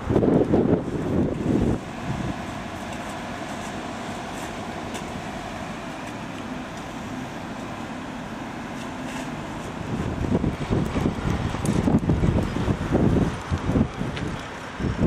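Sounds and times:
wind buffeting microphone: 0:00.0 - 0:02.8, 0:09.6 - 0:15.0
diesel engine droning: 0:00.0 - 0:15.0.

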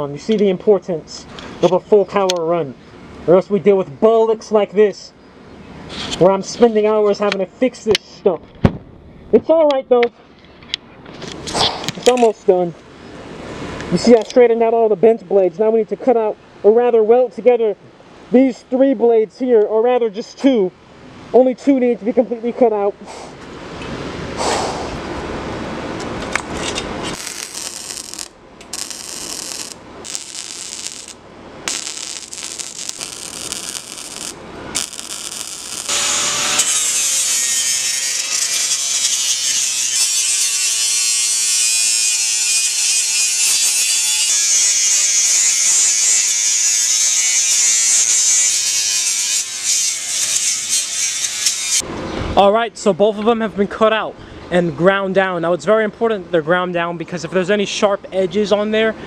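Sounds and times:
angle grinder cutting steel: 0:27.0 - 0:51.8.

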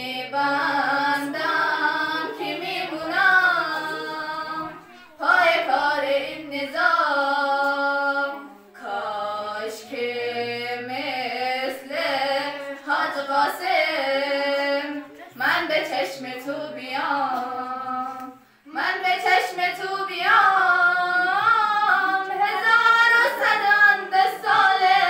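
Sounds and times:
woman singing devotional song: 0:00.0 - 0:25.0.

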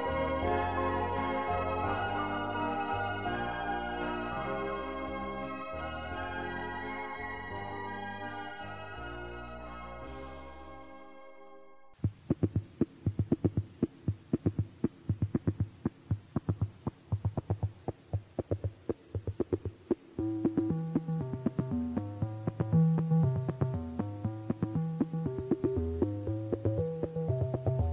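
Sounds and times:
melody of held notes: 0:00.0 - 0:12.0, 0:20.1 - 0:27.9
bass line: 0:20.2 - 0:27.9.

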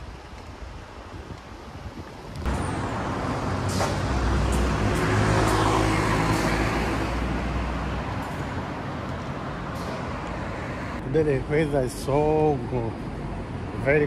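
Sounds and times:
vehicle passing by: 0:02.5 - 0:11.0.

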